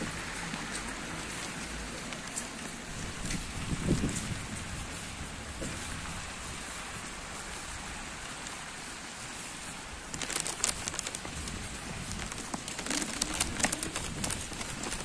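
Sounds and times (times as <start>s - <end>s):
footsteps on wet pavement: 0.0s - 15.0s
rain on wet street: 0.0s - 15.0s
tyres on wet asphalt: 0.0s - 15.0s.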